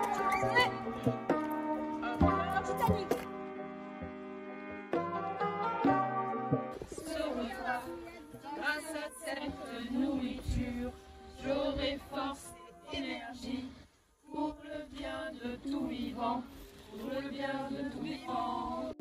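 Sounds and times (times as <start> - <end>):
group singing unaccompanied: 6.7 - 19.0.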